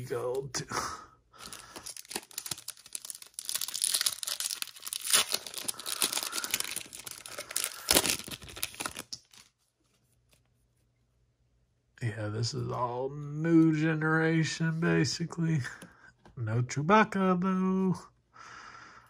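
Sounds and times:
wrapper sharp crack: 1.4s - 9.5s
wrapper tearing and crinkling: 1.4s - 9.5s.

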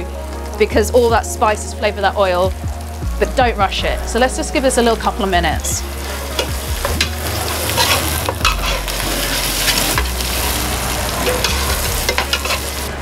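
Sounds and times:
spice paste sizzling in oil: 4.0s - 13.0s
metal spoon scraping pot: 6.3s - 10.2s, 11.2s - 12.8s.

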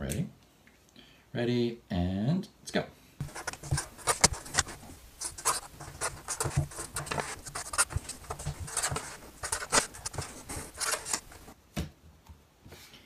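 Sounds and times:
pen scratching on paper: 3.2s - 11.6s.

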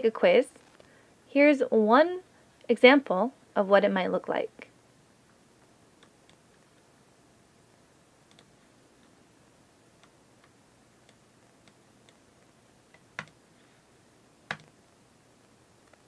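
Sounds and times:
computer mouse clicking: 8.3s - 9.2s, 12.9s - 13.4s, 14.5s - 14.7s.

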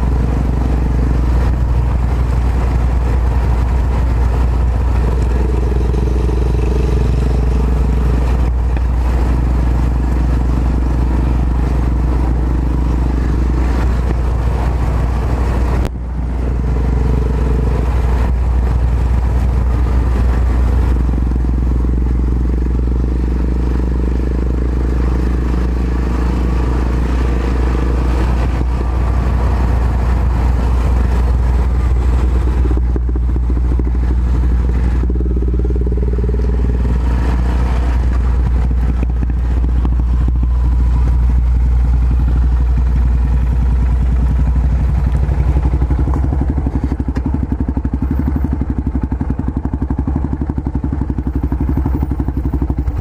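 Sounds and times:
motorcycle engine running: 0.0s - 53.0s.

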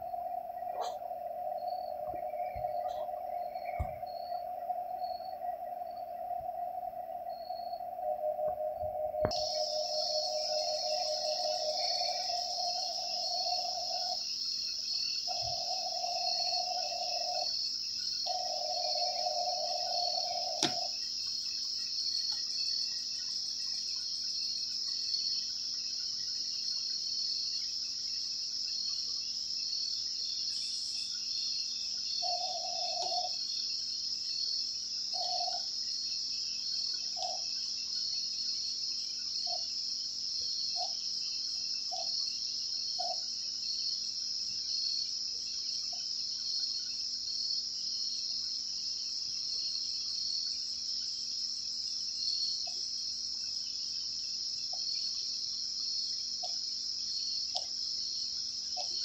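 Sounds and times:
crickets trilling: 0.0s - 59.0s.

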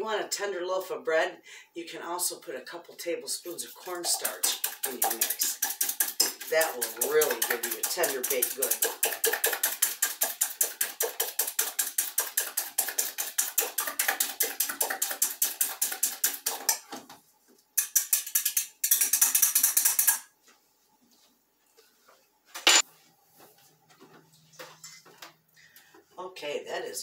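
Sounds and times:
whisk clicking against metal bowl: 3.7s - 16.9s, 17.8s - 20.2s.

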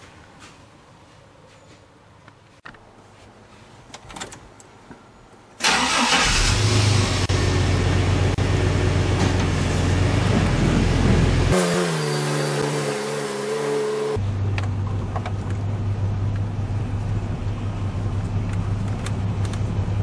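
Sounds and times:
truck engine starting and running: 5.6s - 20.0s.

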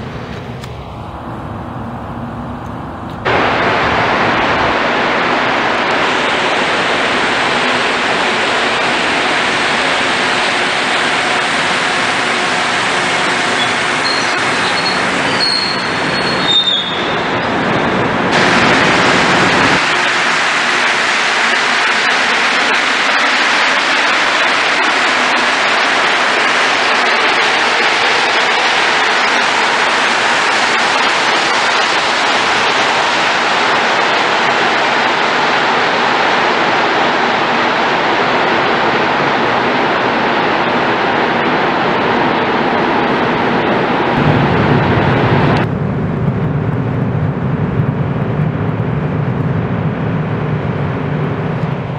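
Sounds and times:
low rumble: 0.0s - 7.6s, 44.2s - 51.9s
train rolling hiss: 18.3s - 38.3s.

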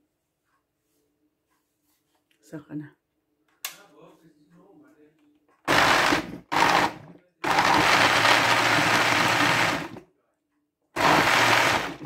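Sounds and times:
blender pureeing: 5.7s - 10.0s, 11.0s - 12.0s.

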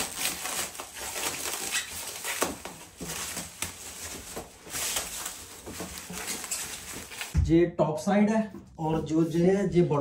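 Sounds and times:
packaging rustling and crinkling: 0.0s - 7.4s.

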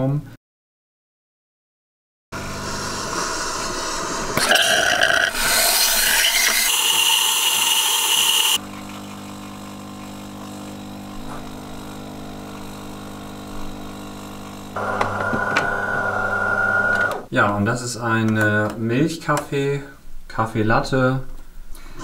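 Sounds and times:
milk frothing hiss: 2.4s - 14.9s
espresso pouring: 2.4s - 16.9s
coffee machine humming: 2.4s - 17.3s.

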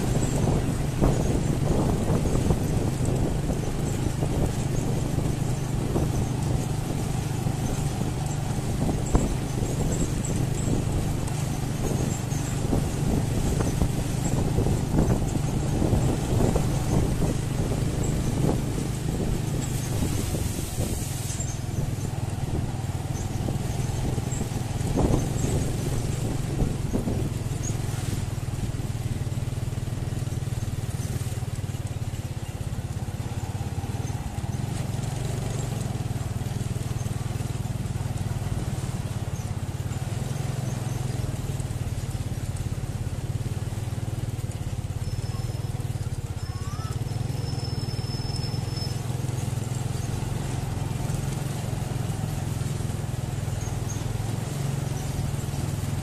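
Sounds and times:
road noise: 0.0s - 56.0s
vehicle engine droning: 0.0s - 56.0s
faint high whistle: 46.5s - 49.0s.

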